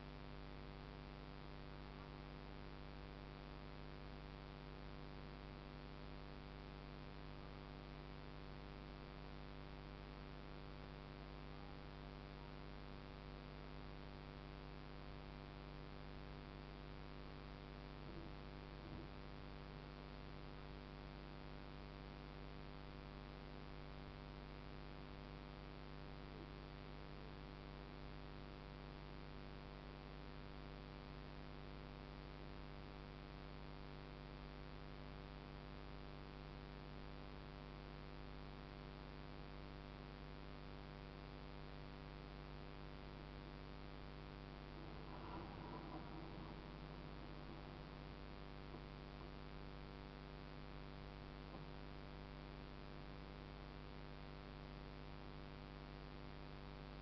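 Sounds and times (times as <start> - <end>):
faint electrical hum: 0.0 - 57.0
low hiss: 43.1 - 50.6.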